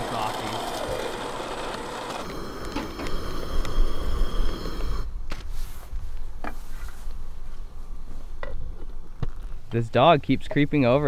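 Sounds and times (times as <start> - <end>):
coffee grinder motor whining: 0.0 - 5.1.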